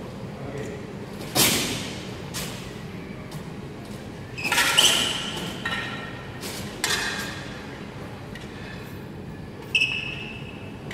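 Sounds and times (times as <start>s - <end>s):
swords clashing in a hall: 0.4s - 2.8s, 3.4s - 9.0s.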